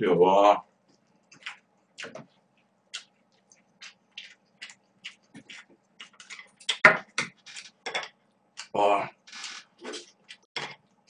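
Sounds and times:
wet chewing: 0.9 - 7.8.

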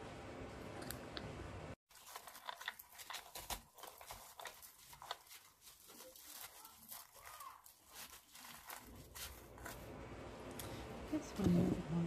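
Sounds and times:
artificial greenery rustling and crackling: 1.9 - 10.0.

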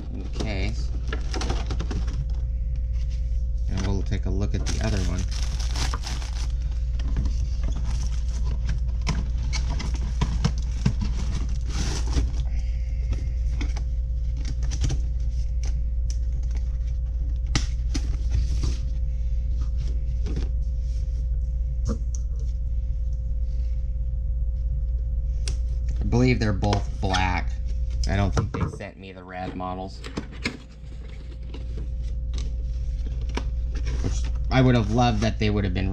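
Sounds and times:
low hum: 0.0 - 35.9
cardboard boxes handled: 4.6 - 6.6.

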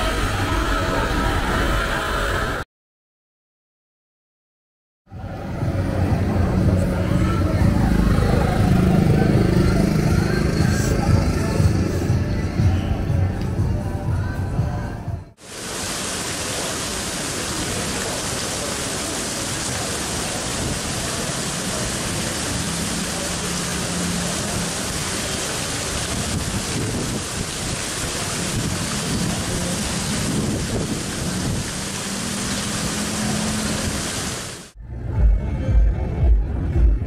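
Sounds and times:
music: 5.1 - 15.4, 34.8 - 37.0
steady hiss: 15.4 - 34.7.

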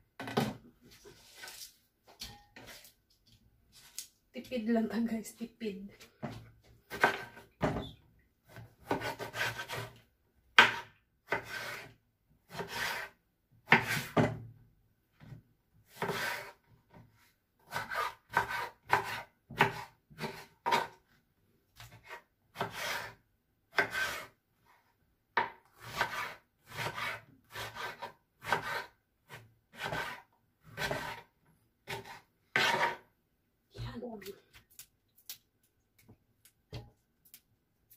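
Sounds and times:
knife cutting on wooden board: 6.9 - 7.4, 8.5 - 10.0, 10.6 - 11.9, 12.5 - 14.2, 15.9 - 16.6, 17.7 - 21.0, 21.8 - 24.3, 25.4 - 33.0.

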